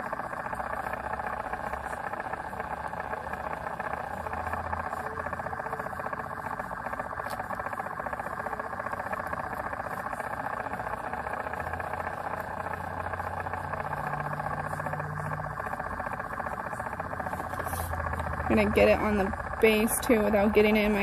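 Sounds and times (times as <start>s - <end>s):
small electric motor whirring: 0.0s - 21.0s.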